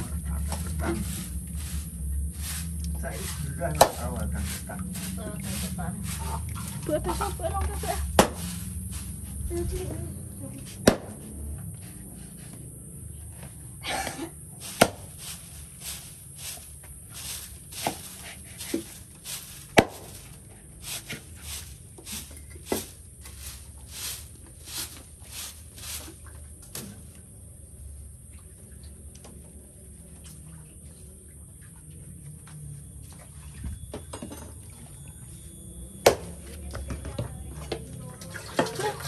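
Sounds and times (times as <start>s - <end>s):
machete chopping coconut husk: 3.7s - 6.3s, 8.0s - 9.1s, 10.8s - 11.2s, 14.6s - 16.1s, 17.7s - 20.3s, 22.2s - 23.5s, 36.0s - 36.4s.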